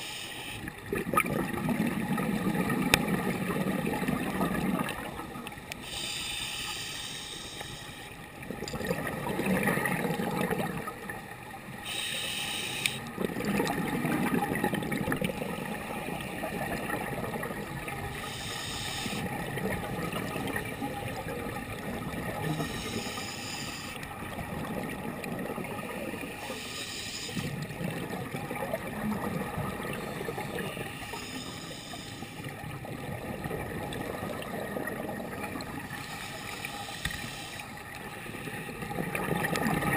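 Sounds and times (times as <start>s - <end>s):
hissing regulator breaths: 0.0s - 0.6s, 5.8s - 8.2s, 11.8s - 13.1s, 18.2s - 19.2s, 22.5s - 24.0s, 26.4s - 27.5s, 30.9s - 32.4s, 36.0s - 37.7s
bubbling underwater exhalations: 0.9s - 5.1s, 8.5s - 11.0s, 13.1s - 15.8s.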